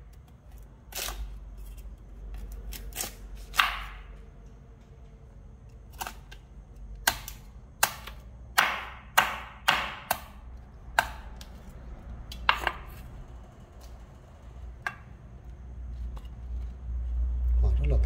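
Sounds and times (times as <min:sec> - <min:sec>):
knife chopping hard fruit: 0:02.4 - 0:04.2, 0:07.0 - 0:11.6.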